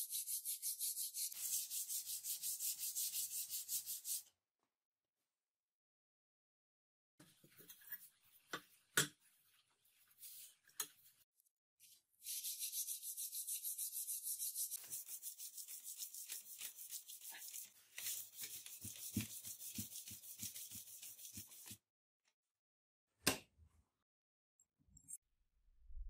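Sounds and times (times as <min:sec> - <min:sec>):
sandpaper sanding steel blade: 0:00.0 - 0:04.3, 0:12.2 - 0:21.8.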